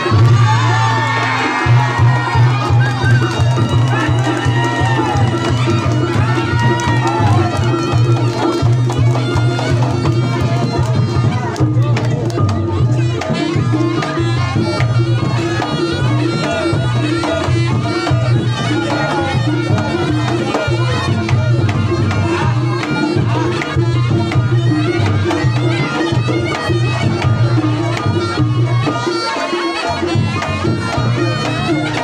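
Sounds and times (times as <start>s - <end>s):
hand drums: 0.0s - 32.0s
shawm melody: 0.0s - 32.0s.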